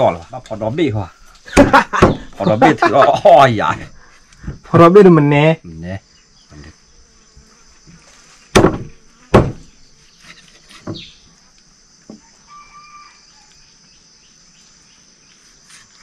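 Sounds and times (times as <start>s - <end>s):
insects droning: 0.0s - 16.0s
knife chopping on wooden block: 8.6s - 9.6s.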